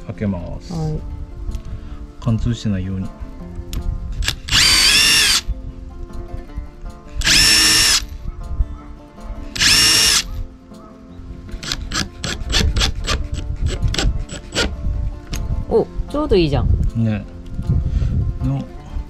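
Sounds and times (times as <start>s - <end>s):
cordless drill whining: 4.2s - 5.4s, 7.2s - 8.1s, 9.6s - 10.3s.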